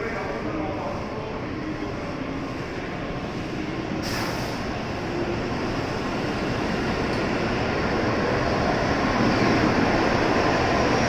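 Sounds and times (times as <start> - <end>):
brief hiss: 4.0 - 4.7.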